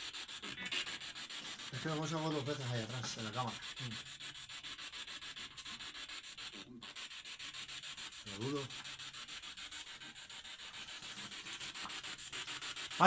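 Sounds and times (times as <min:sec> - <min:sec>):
pulsing static hiss: 0:00.0 - 0:04.7, 0:05.4 - 0:13.0.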